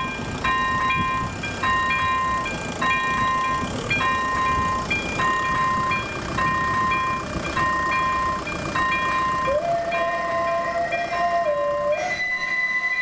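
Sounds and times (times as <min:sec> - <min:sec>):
steady low rumble: 0:00.0 - 0:09.5
level crossing warning bell: 0:00.0 - 0:13.0.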